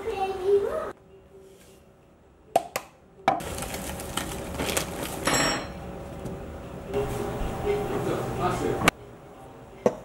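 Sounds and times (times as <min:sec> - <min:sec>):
plastic bag crinkling: 0:03.4 - 0:05.4.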